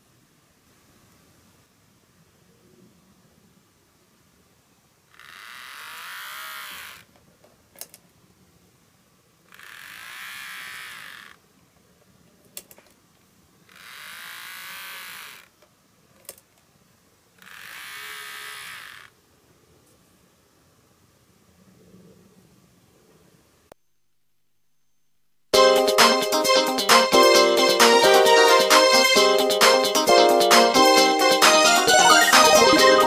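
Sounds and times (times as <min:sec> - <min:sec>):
model train motor whining: 0:05.2 - 0:07.1, 0:09.5 - 0:11.4, 0:13.7 - 0:15.5, 0:17.4 - 0:19.1.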